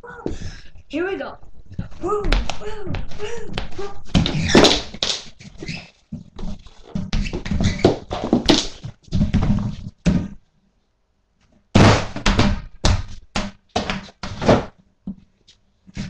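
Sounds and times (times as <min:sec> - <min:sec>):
person bumping and tumbling: 0:01.4 - 0:10.4, 0:11.7 - 0:15.3.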